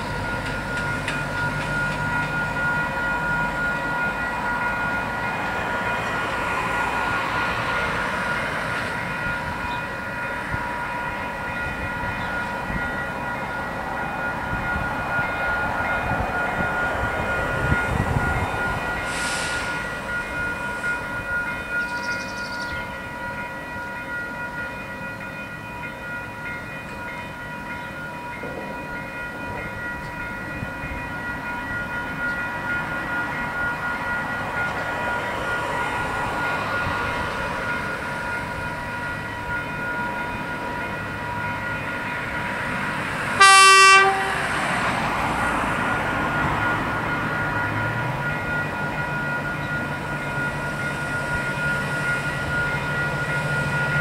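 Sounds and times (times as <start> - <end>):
crossing alarm bells ringing: 0.0 - 54.0
train engine approaching: 0.0 - 54.0
train horn blast: 43.3 - 44.8.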